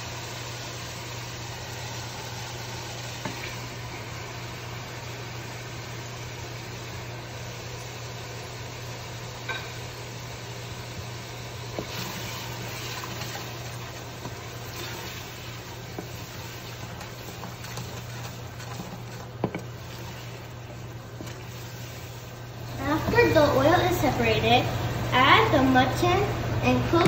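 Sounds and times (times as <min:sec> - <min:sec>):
masala sizzling in oil: 0:00.0 - 0:26.7
steady low hum: 0:00.0 - 0:27.0
wooden spoon stirring: 0:11.7 - 0:24.2.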